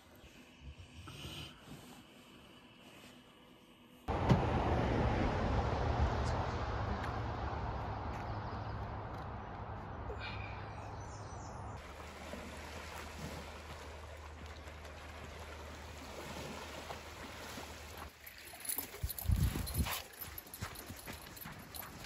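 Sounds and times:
small waves lapping: 11.8s - 19.2s.

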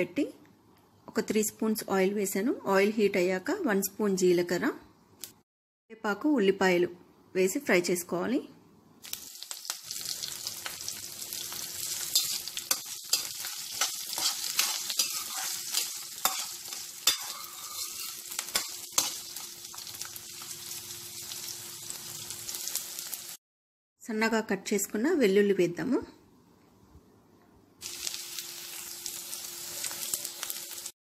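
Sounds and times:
food sizzling in hot oil: 9.0s - 23.4s, 27.8s - 31.0s
spoon scraping a pan: 11.9s - 19.4s.

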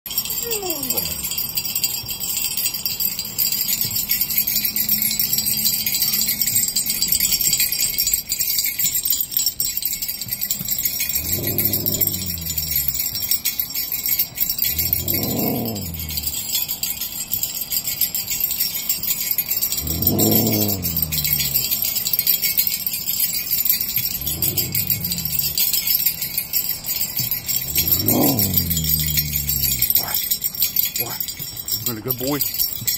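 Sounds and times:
sleigh bells jingling: 0.1s - 32.9s
dog howling vocal calls: 11.2s - 13.0s, 14.6s - 16.5s, 19.8s - 21.9s, 24.1s - 25.8s, 27.6s - 30.2s.

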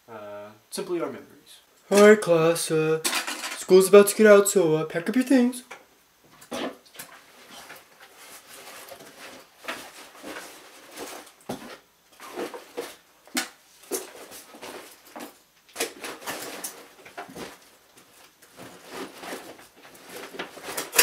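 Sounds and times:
fabric backpack rustling: 7.2s - 13.1s, 13.7s - 21.0s.

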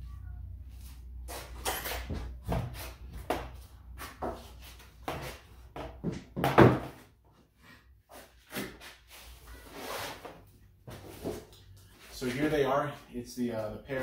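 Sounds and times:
wooden table knocks and thumps: 6.0s - 7.0s.

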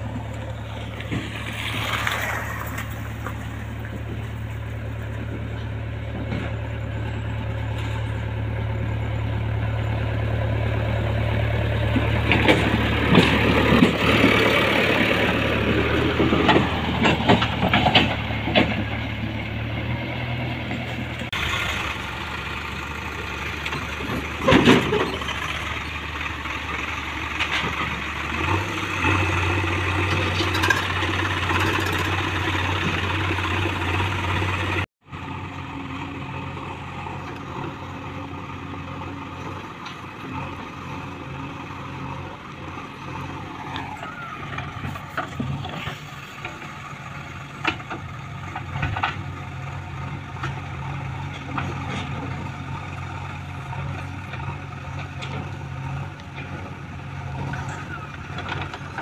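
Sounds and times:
diesel engine running: 0.0s - 59.0s
machine clanks and rattles: 11.9s - 14.6s, 15.9s - 19.1s, 23.4s - 29.2s, 30.0s - 34.8s.

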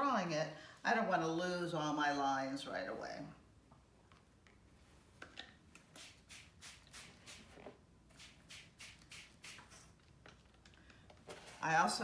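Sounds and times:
spray bottle squirting: 5.8s - 10.1s.

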